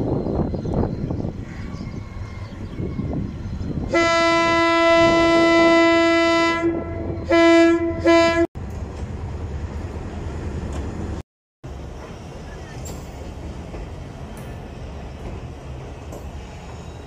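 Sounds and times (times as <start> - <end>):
train rumbling: 0.0 - 17.0
locomotive horn blasts: 3.9 - 8.5
train clattering over steel bridge: 8.6 - 17.0.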